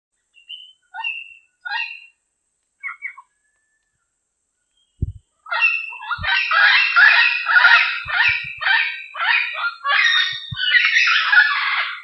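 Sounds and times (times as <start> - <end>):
low thump: 5.0 - 5.2
parrot squawking: 5.5 - 12.0.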